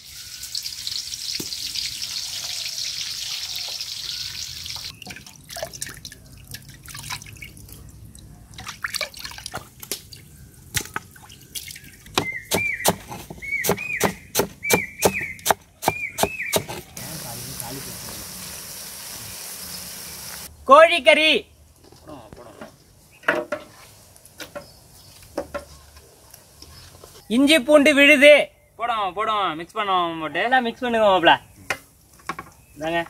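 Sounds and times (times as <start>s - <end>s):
onions sizzling in oil: 0.0s - 4.9s, 17.0s - 20.5s
water splashing and dripping: 0.0s - 12.2s, 17.0s - 20.5s
knife chopping on wooden board: 12.1s - 16.9s.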